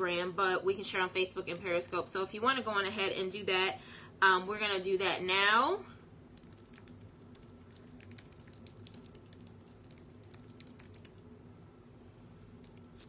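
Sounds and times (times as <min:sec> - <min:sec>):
low room hum: 0:00.0 - 0:13.0
faint typing on keyboard: 0:06.3 - 0:11.3.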